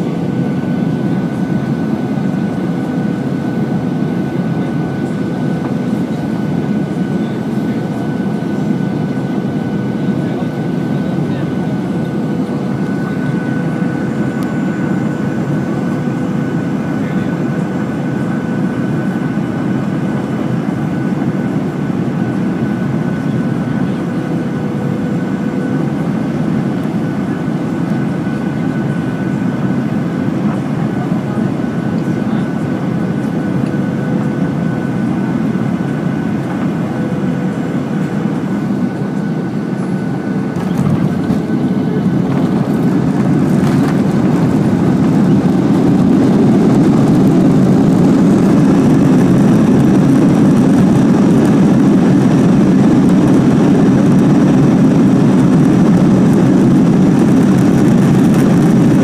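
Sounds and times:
aircraft cabin air rush: 0:00.0 - 0:59.0
jet engine whine: 0:00.0 - 0:59.0
aircraft touching down: 0:22.5 - 0:59.0.

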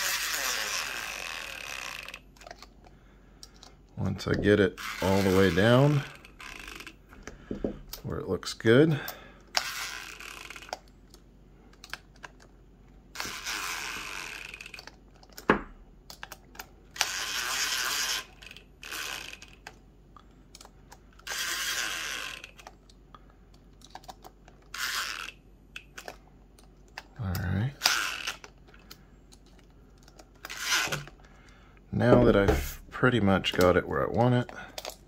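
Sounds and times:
cordless driver driving screws: 0:30.4 - 0:31.1.

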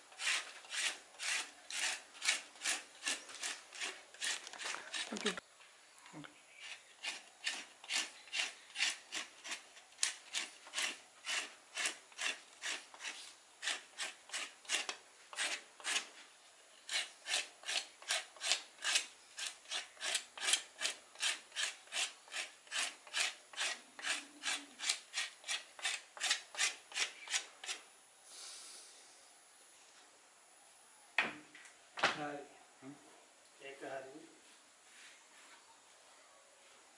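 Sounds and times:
blade scraping bark off a stick: 0:00.0 - 0:05.4, 0:06.6 - 0:27.8.

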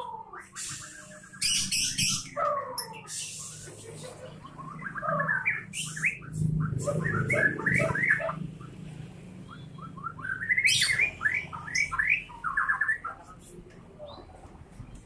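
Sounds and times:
bird singing whistled notes: 0:00.4 - 0:02.3, 0:04.5 - 0:08.4, 0:09.4 - 0:13.1.

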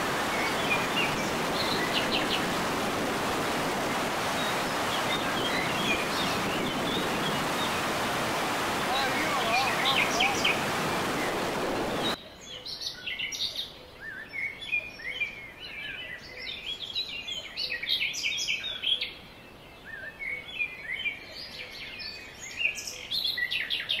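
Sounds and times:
water rushing through spillway: 0:00.0 - 0:12.2
birds chirping and calling: 0:00.2 - 0:02.7, 0:03.7 - 0:12.2.

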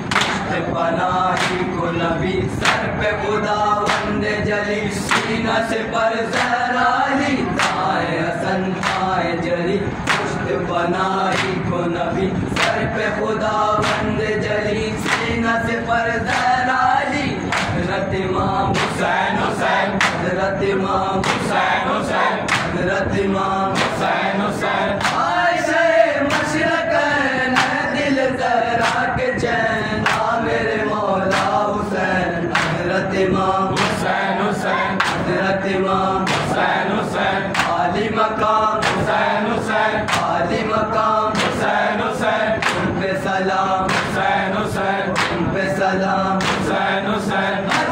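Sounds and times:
men chanting together: 0:00.0 - 0:47.9
hands slapping chests: 0:00.1 - 0:00.5, 0:01.4 - 0:01.6, 0:08.8 - 0:09.1, 0:10.1 - 0:10.3, 0:20.0 - 0:20.2, 0:21.2 - 0:21.5, 0:22.5 - 0:22.7, 0:27.6 - 0:27.8, 0:31.3 - 0:31.6, 0:32.6 - 0:32.8, 0:33.8 - 0:34.0, 0:35.0 - 0:35.3, 0:36.3 - 0:36.6, 0:37.5 - 0:37.8, 0:38.8 - 0:39.2, 0:40.1 - 0:40.4, 0:43.9 - 0:44.2, 0:45.2 - 0:45.4, 0:46.4 - 0:46.7.

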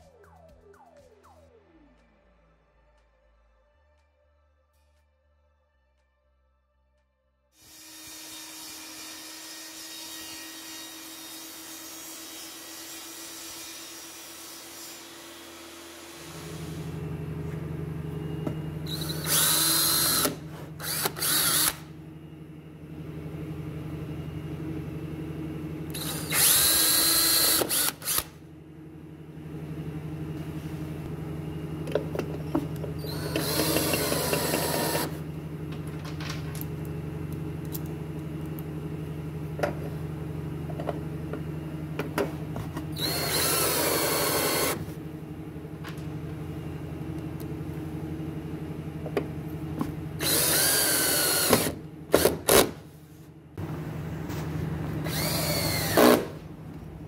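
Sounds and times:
steady low hum: 0:16.3 - 0:52.2, 0:52.8 - 0:57.0
cordless drill whining: 0:18.9 - 0:21.9, 0:26.0 - 0:28.3, 0:33.0 - 0:35.2, 0:43.0 - 0:44.8, 0:50.2 - 0:52.4, 0:55.0 - 0:56.4.

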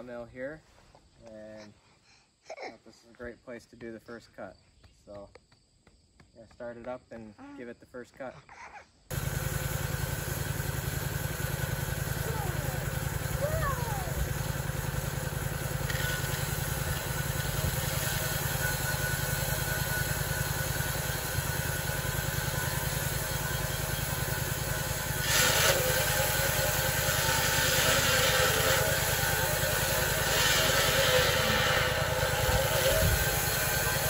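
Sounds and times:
rushing hiss: 0:09.1 - 0:34.0
sawmill engine running: 0:09.1 - 0:34.0.

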